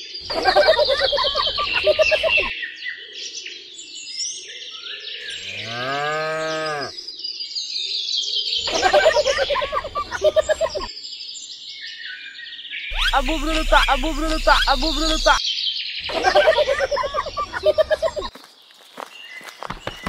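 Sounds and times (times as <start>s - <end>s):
birdsong chirping: 0.0s - 2.5s, 5.2s - 7.0s, 8.6s - 10.9s, 12.9s - 15.4s, 16.0s - 20.0s
cattle mooing: 5.4s - 6.9s.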